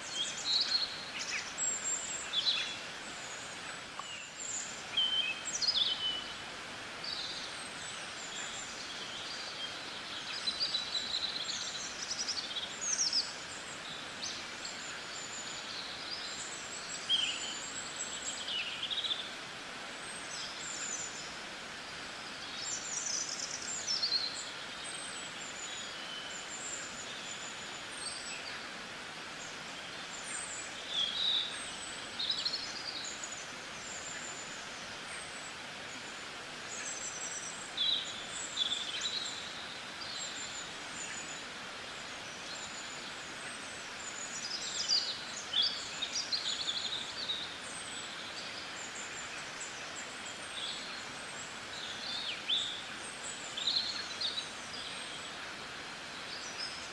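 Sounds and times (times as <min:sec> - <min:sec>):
small birds chirping: 0:00.0 - 0:56.9
steady hiss: 0:00.0 - 0:56.9.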